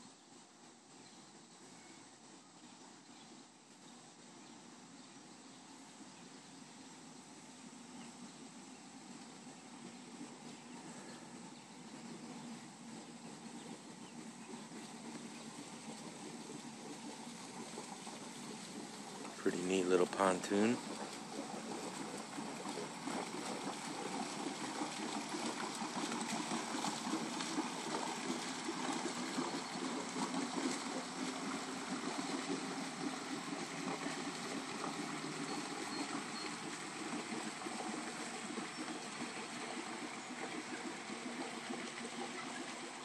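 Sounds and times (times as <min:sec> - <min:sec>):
water gurgling and lapping: 0:09.4 - 0:43.0
boat motor running: 0:09.5 - 0:43.0.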